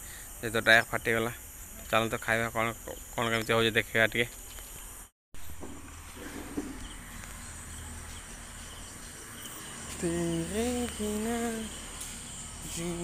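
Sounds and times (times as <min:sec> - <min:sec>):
crickets chirring: 0:00.0 - 0:13.0
low hum: 0:05.4 - 0:13.0.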